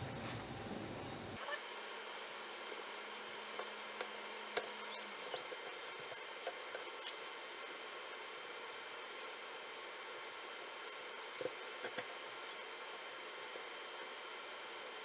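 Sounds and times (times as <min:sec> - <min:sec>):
brush tapping and brushing wood: 0:03.5 - 0:07.8, 0:10.6 - 0:13.8.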